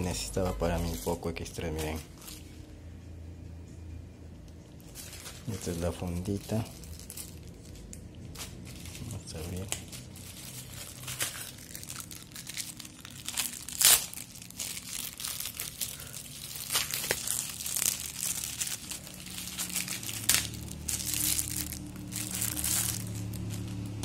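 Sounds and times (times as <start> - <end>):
plastic packaging crinkling and tearing: 0.0 - 2.6, 4.7 - 24.0.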